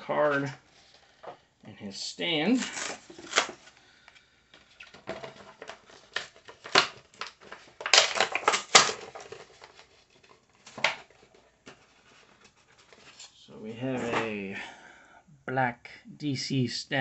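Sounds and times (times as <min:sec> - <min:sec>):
plastic packaging crinkling: 0:02.4 - 0:03.8, 0:04.5 - 0:13.4.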